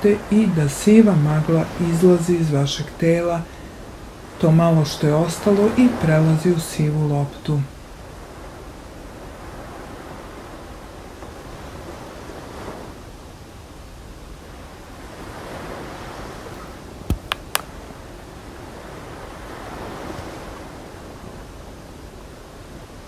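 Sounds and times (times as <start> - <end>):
surf washing on sandy beach: 0.0 - 23.0
sharp clicks: 17.1 - 17.7.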